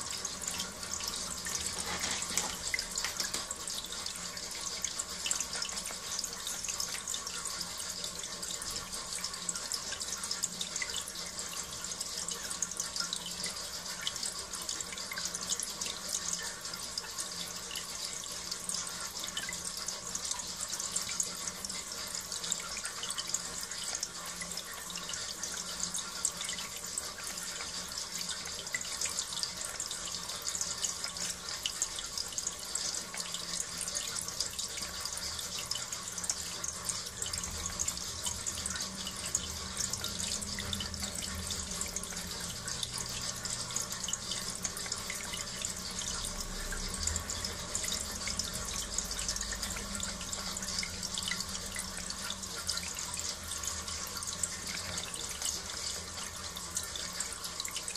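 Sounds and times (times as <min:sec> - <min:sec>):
water splashing from hose into bowl: 0:00.0 - 0:11.8.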